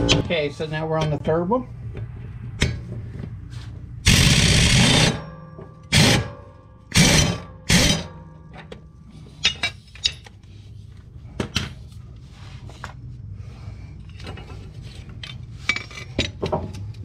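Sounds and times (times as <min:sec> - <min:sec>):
impact wrench burst: 0:04.0 - 0:05.3, 0:05.9 - 0:08.1.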